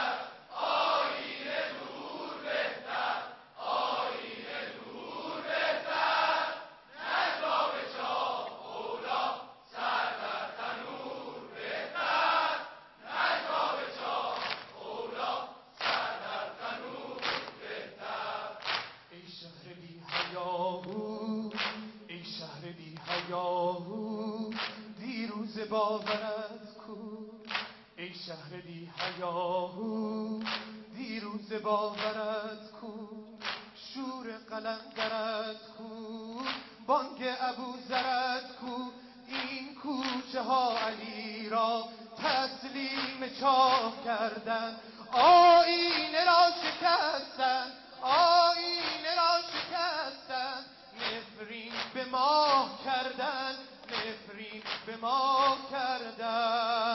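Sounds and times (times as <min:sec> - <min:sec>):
crowd of men chanting: 0:00.0 - 0:18.6
chest-beating slaps: 0:14.3 - 0:14.8, 0:15.8 - 0:16.3, 0:17.2 - 0:17.7, 0:18.6 - 0:19.0, 0:20.1 - 0:21.9, 0:23.0 - 0:23.4, 0:24.5 - 0:24.8, 0:26.0 - 0:26.3, 0:27.5 - 0:27.8, 0:30.4 - 0:30.8, 0:32.0 - 0:32.2, 0:33.4 - 0:33.8, 0:36.4 - 0:36.8, 0:39.3 - 0:40.2, 0:42.2 - 0:43.9, 0:45.8 - 0:46.9, 0:48.8 - 0:49.8, 0:51.0 - 0:52.6, 0:53.8 - 0:55.6.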